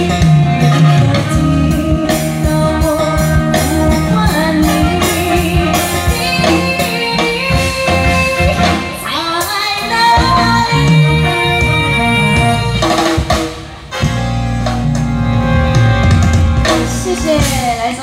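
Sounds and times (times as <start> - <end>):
woman singing pop ballad: 0.0 - 13.0
backing music with steady beat: 0.0 - 18.0.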